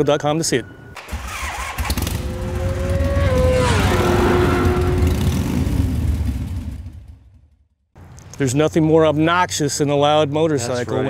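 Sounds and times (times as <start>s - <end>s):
motorcycle engine passing: 1.0s - 7.5s.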